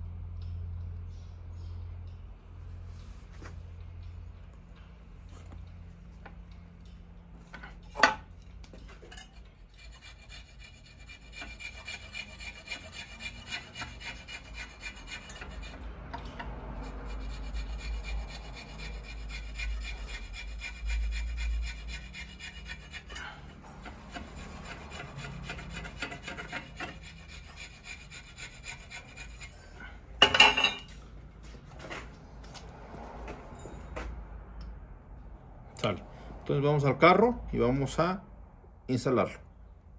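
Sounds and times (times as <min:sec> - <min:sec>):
metal rasping with ringing: 0:03.8 - 0:31.0, 0:33.2 - 0:34.1.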